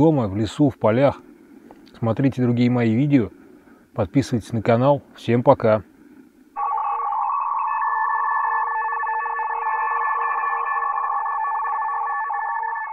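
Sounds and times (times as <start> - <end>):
chord of electronic tones: 6.6 - 12.9.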